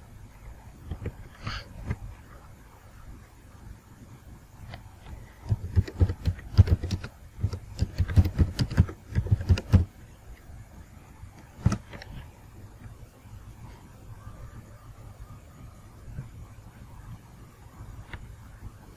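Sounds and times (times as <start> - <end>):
keyboard key clicks: 5.4 - 9.9.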